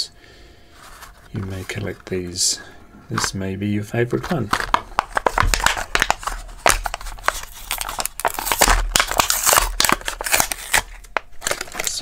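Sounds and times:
plastic blister crinkling: 4.1 - 12.0
card tearing: 4.3 - 12.0.

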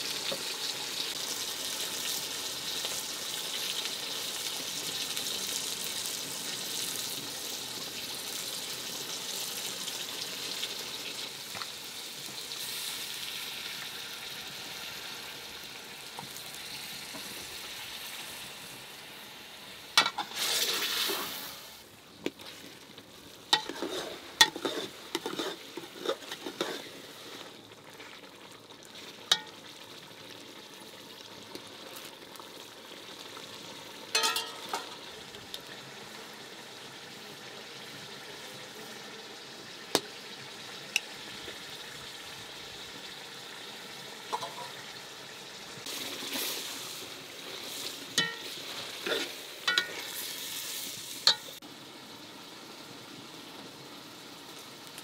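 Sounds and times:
stew sizzling in a pot: 0.0 - 55.0
metal ladle clinking against pot: 34.1 - 34.9, 48.2 - 48.6, 49.7 - 50.0.

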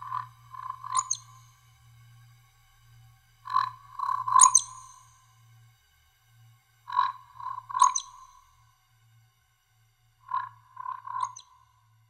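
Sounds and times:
faint low drone: 0.0 - 12.0.

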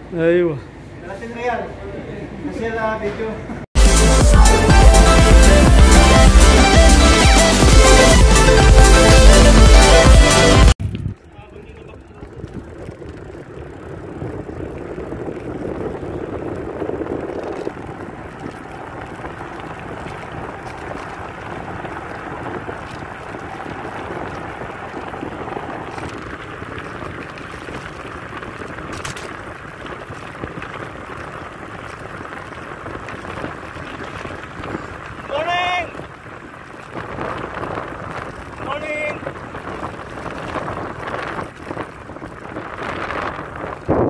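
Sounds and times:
road noise: 0.0 - 44.0
wind rush: 3.8 - 44.0.

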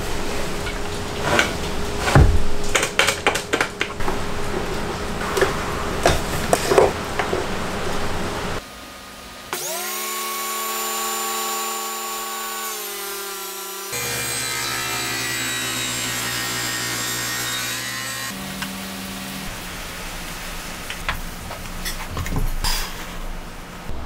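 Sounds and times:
table saw motor whining: 9.5 - 18.4.

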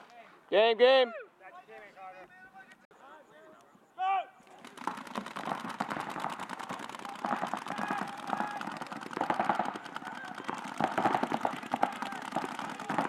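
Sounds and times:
paintball markers firing: 4.5 - 13.0
players shouting: 6.4 - 13.0.

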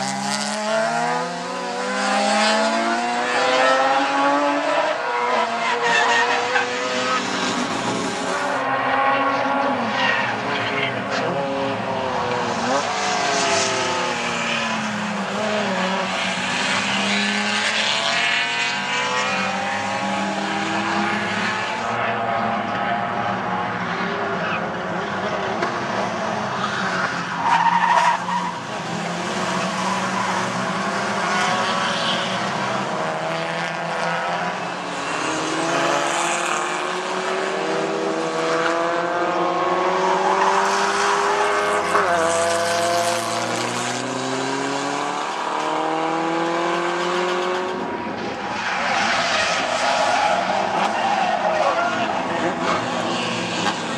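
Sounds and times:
racing car engines revving: 0.0 - 53.9
tyres skidding and squealing: 5.1 - 18.0, 18.7 - 36.3, 47.7 - 53.9.

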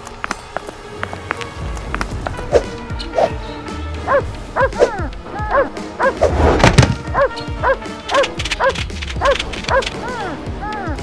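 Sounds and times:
background music: 0.0 - 11.0
small dog barking: 4.1 - 6.3, 7.1 - 10.3.

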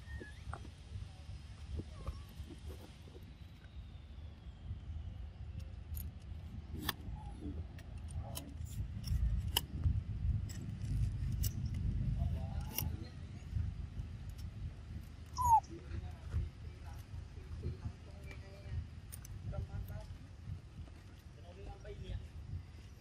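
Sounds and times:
high falling chirp: 15.4 - 15.6.

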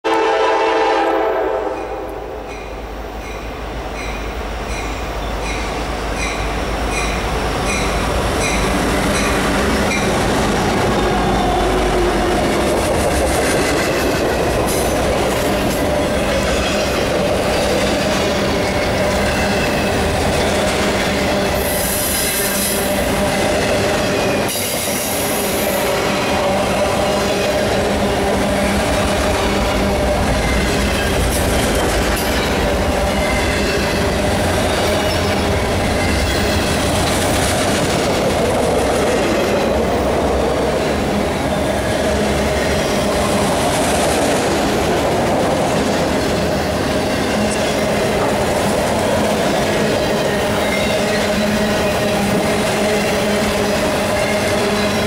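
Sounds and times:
train horn: 0.0 - 2.5
train wheels rumbling on rails: 0.1 - 55.0
crossing bell ringing: 1.7 - 10.2.

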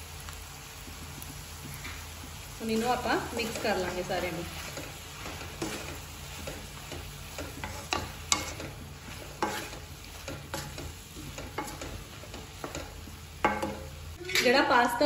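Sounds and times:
vegetables sizzling in wok: 0.0 - 15.0
spatula scraping pan: 2.7 - 14.6.

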